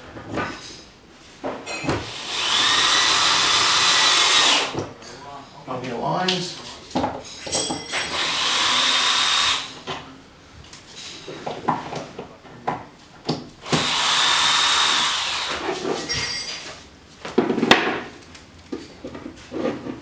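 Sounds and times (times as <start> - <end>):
cordless drill whining: 2.0 - 4.8, 8.1 - 9.8, 13.6 - 15.6.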